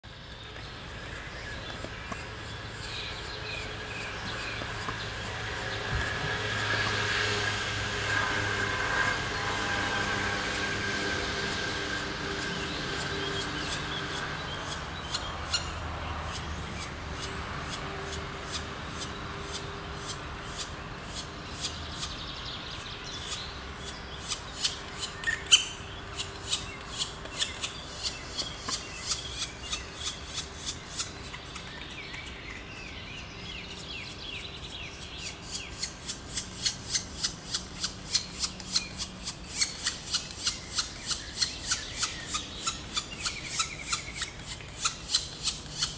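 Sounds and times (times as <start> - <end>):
birds chirping faintly: 8.6 - 45.9
nestlings rasping begging calls: 11.8 - 33.0, 33.7 - 45.9.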